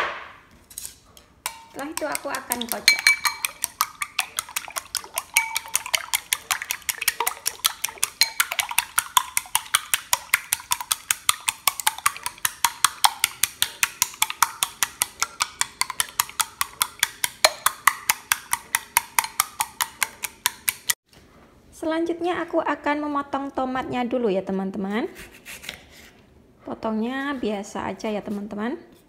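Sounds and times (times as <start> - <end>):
chopsticks clicking against glass bowl: 1.5 - 21.0.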